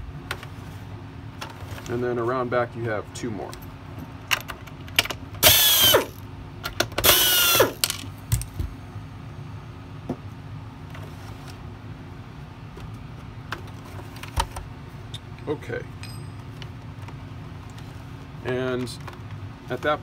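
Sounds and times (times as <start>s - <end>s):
screwdriver removing screws: 7.0s - 7.8s.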